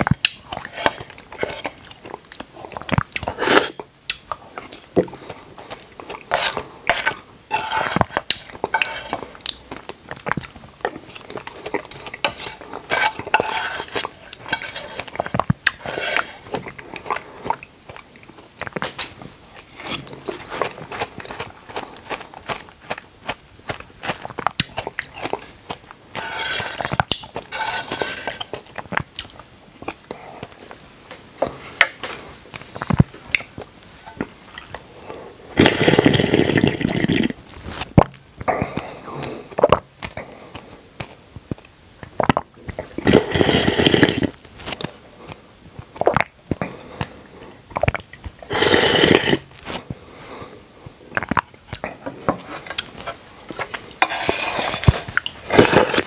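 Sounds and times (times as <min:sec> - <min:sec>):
loud slurps: 0:03.3 - 0:03.8, 0:35.6 - 0:37.4, 0:43.0 - 0:44.4, 0:48.5 - 0:49.5, 0:54.0 - 0:56.0.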